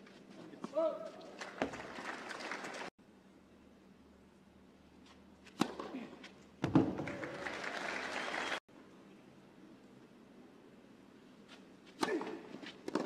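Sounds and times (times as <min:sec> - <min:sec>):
crowd applauding: 0:01.3 - 0:02.9, 0:07.0 - 0:08.6
tennis ball struck: 0:05.5 - 0:06.0.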